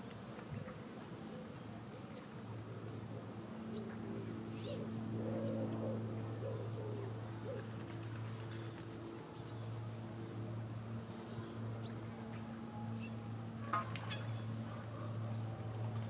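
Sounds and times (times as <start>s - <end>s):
steady low hum: 0.0s - 16.0s
pigeon cooing: 3.9s - 7.8s.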